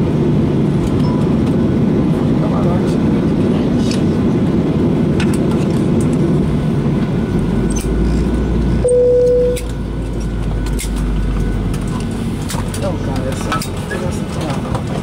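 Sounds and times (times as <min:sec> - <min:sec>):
rumble of engines and air conditioning: 0:00.0 - 0:15.0
short steady tone: 0:08.8 - 0:09.7.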